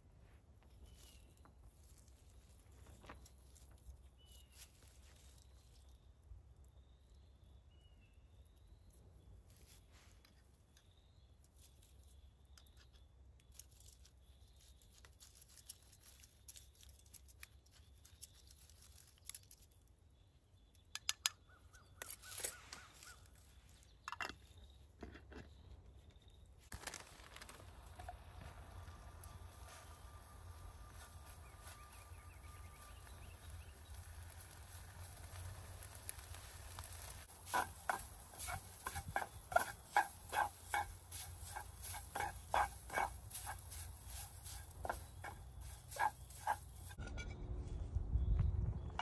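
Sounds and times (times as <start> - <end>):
faint bird chirps: 2.8 - 19.2, 20.1 - 26.6, 27.4 - 36.5.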